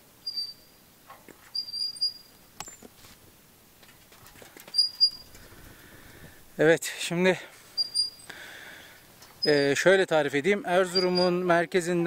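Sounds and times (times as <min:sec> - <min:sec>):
swing set squeaking: 0:00.0 - 0:02.9, 0:04.6 - 0:05.5, 0:07.7 - 0:08.3, 0:09.3 - 0:10.0, 0:10.8 - 0:11.6.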